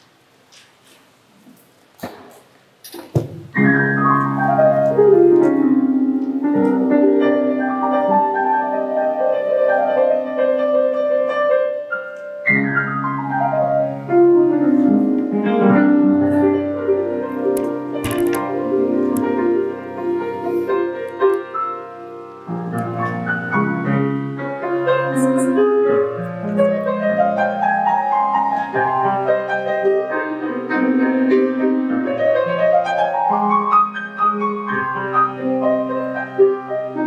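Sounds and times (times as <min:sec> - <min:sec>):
piano music: 0:03.2 - 0:37.0.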